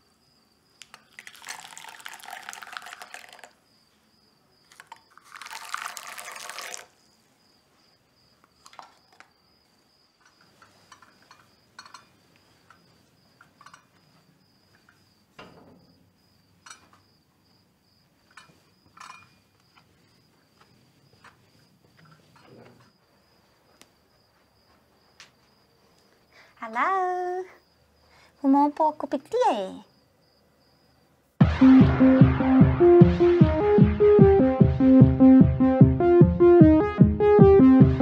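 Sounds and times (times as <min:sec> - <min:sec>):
contents poured into a teacup: 0:00.8 - 0:03.6, 0:04.7 - 0:07.0, 0:08.6 - 0:09.3.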